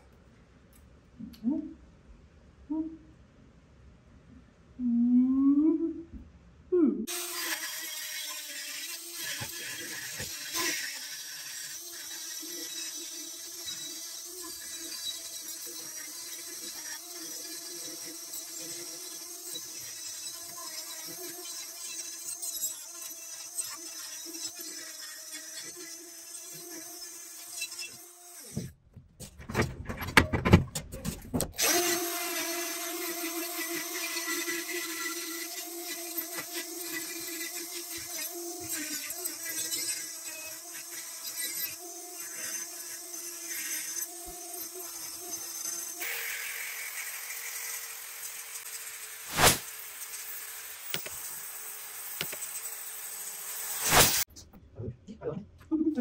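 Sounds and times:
die grinder whining: 7.1s - 28.8s, 31.5s - 54.3s.

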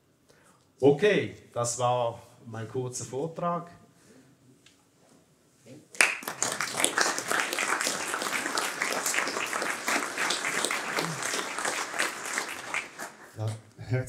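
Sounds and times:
audience applauding: 6.0s - 13.6s.

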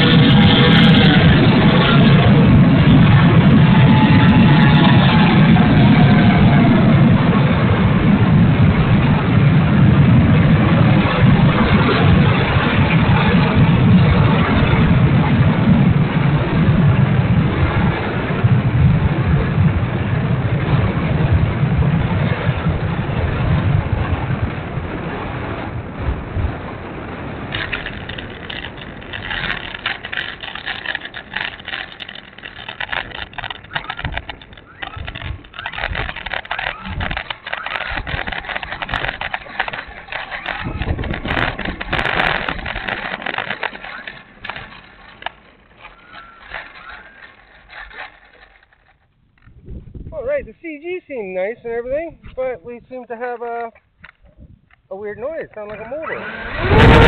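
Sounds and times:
electric motor noise: 0.0s - 7.1s, 27.5s - 49.0s, 55.8s - 57.0s
rough crackling rattle: 0.0s - 19.3s, 26.3s - 57.0s.

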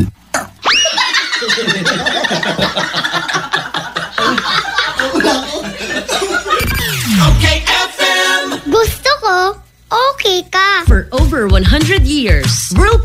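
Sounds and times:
canned laughter: 0.6s - 6.8s.

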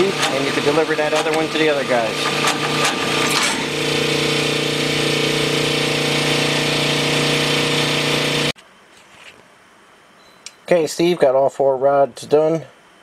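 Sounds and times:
honing machine running: 0.0s - 8.5s.

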